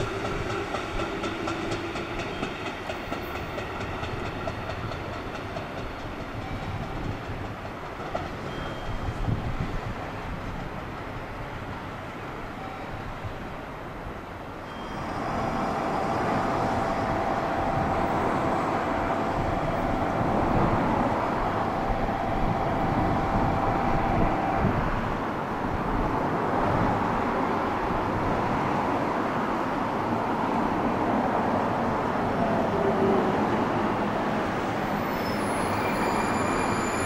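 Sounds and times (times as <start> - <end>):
train wheels rumbling on rails: 0.0 - 13.8, 14.6 - 37.0
steady whine: 15.0 - 24.8.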